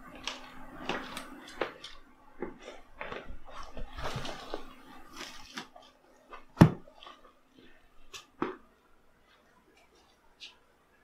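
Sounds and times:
rummaging knocks and rustling: 0:00.8 - 0:07.3.

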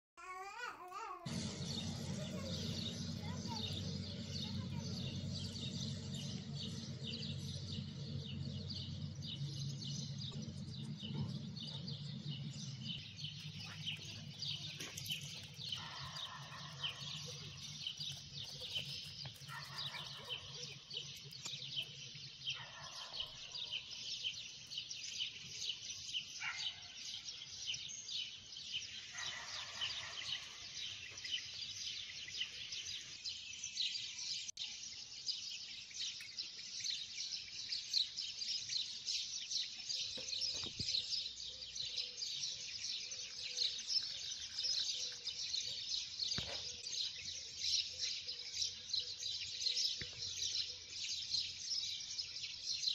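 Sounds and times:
small birds chirping: 0:00.2 - 0:52.9
low steady hum: 0:01.3 - 0:19.6.

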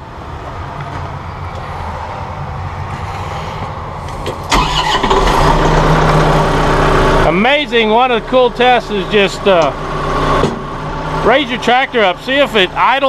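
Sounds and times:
tractor diesel engine running: 0:03.6 - 0:13.0
starter motor cranking: 0:04.4 - 0:07.3.

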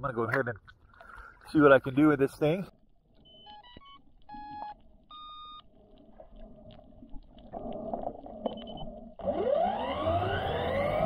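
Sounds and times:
electronic beep: 0:03.2 - 0:05.7, 0:08.4 - 0:08.9.

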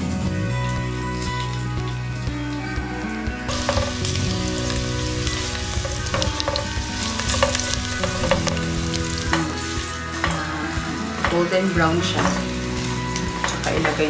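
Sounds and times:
garlic sizzling in oil: 0:00.0 - 0:14.0
utensil stirring in pan: 0:03.4 - 0:14.0.

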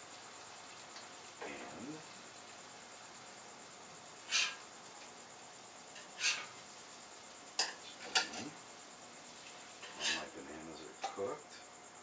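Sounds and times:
spatula scraping on a griddle: 0:04.2 - 0:04.7, 0:05.9 - 0:06.8, 0:07.6 - 0:08.6, 0:09.3 - 0:10.4.

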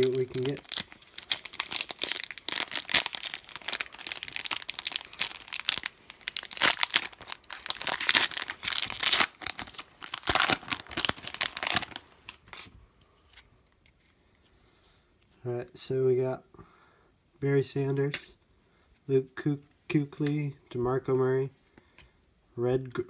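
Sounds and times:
foil wrapper crinkling and tearing: 0:00.0 - 0:12.7.

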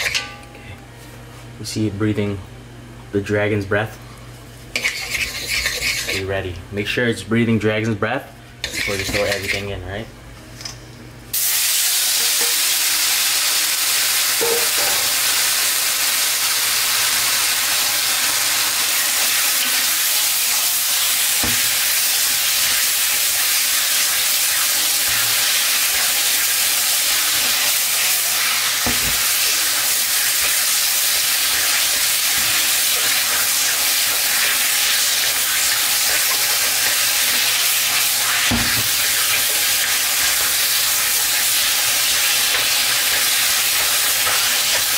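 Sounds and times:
chicken sizzling in a wok: 0:11.3 - 0:44.9.

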